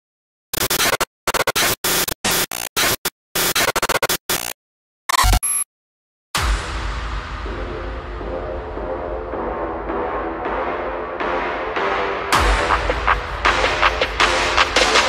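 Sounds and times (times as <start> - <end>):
deep low hit: 6.4 - 10.8
music with heavy bass: 6.4 - 15.0.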